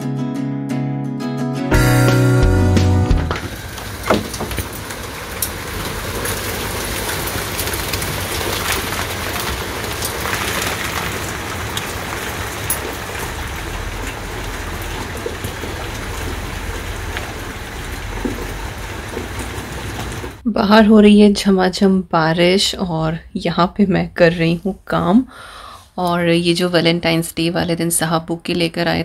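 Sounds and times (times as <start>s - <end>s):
heavy pouring rain: 1.8s - 20.4s.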